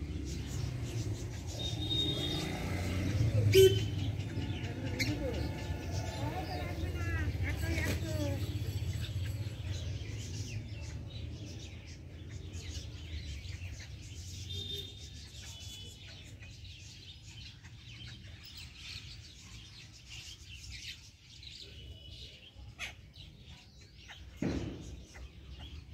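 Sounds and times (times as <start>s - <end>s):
small birds chirping: 0.0s - 25.9s
thump: 24.4s - 25.2s.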